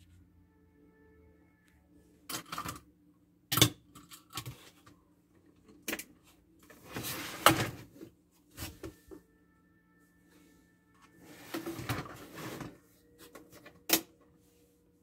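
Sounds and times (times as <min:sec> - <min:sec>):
plastic unit rustling scrape: 0:06.8 - 0:08.8, 0:11.2 - 0:12.8.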